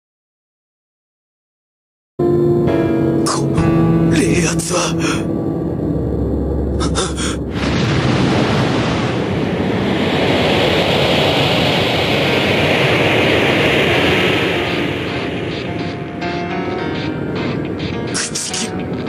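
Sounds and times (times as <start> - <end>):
deep rumble: 2.3 - 18.1
loud rushing noise: 5.2 - 19.0.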